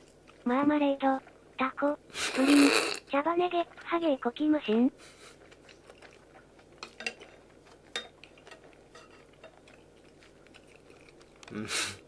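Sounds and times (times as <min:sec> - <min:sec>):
chopsticks stirring in a bowl: 0:03.5 - 0:11.5
chopsticks tapping bowl: 0:06.8 - 0:09.8.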